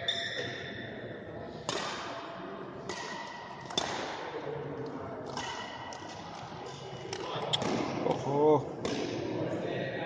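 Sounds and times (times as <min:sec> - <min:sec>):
rackets striking shuttlecock: 0:01.6 - 0:04.4, 0:05.2 - 0:08.2, 0:08.8 - 0:09.3.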